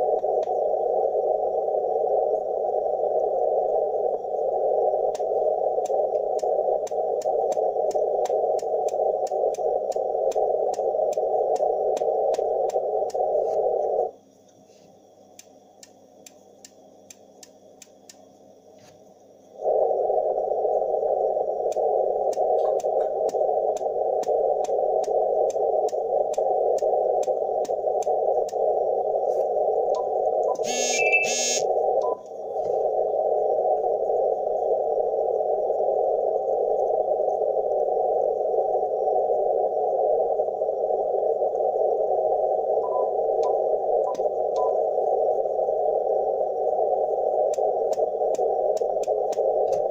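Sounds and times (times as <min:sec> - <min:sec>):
radio receiver hiss: 0:00.0 - 0:49.9
sharp clicks of radio tuning: 0:04.8 - 0:14.1, 0:20.9 - 0:32.4, 0:42.7 - 0:45.3, 0:46.6 - 0:49.9.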